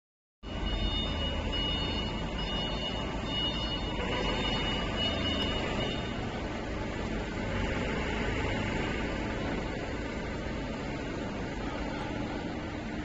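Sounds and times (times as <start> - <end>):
high warning beep: 0.4 - 6.3.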